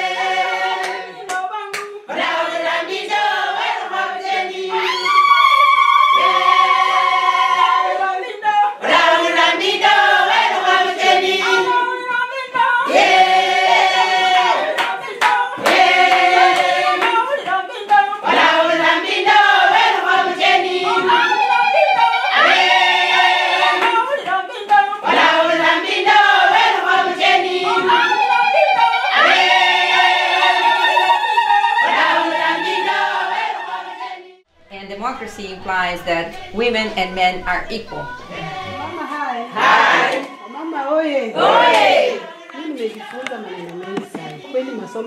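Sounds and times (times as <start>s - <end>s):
group of voices singing: 0.0s - 45.0s.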